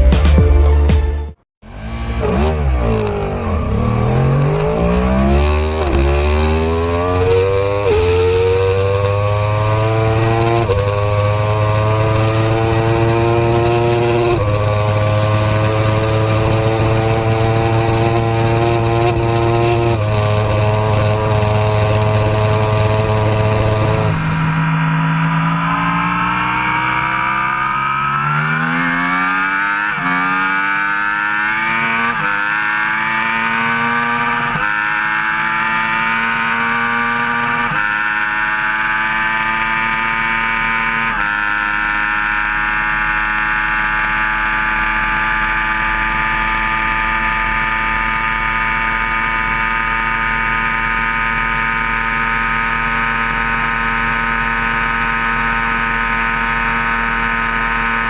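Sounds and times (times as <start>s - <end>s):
motorcycle engine accelerating: 1.6s - 58.0s.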